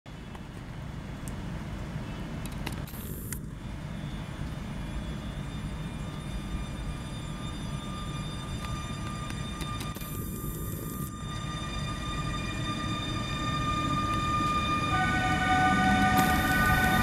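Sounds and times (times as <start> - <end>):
faint steady whine: 0.1 - 17.0
train low rumble: 0.1 - 17.0
high hiss: 15.3 - 17.0.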